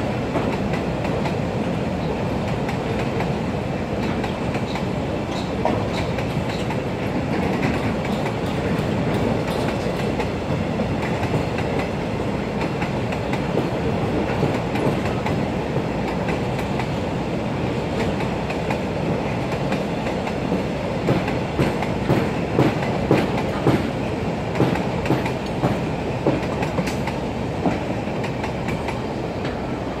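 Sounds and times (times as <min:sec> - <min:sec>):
train wheels rumbling on rails: 0:00.0 - 0:30.0
clickety-clack wheel clacks: 0:04.0 - 0:11.9, 0:12.6 - 0:15.4, 0:18.0 - 0:29.6.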